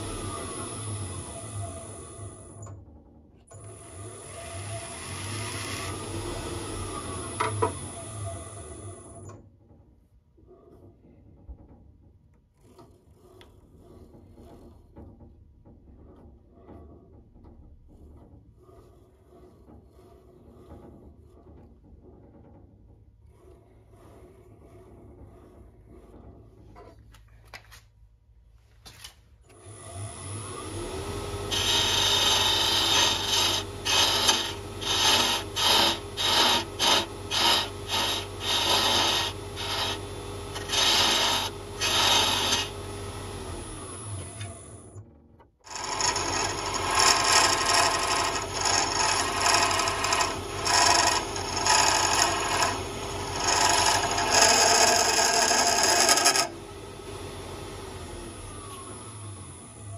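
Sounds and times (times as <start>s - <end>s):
wood lathe running: 0.0s - 2.7s, 3.5s - 9.2s, 18.0s - 22.5s, 23.2s - 26.2s, 29.5s - 45.0s, 45.6s - 59.9s
chisel cutting spinning wood: 0.0s - 2.8s, 3.4s - 9.4s, 12.3s - 27.2s, 29.5s - 59.9s.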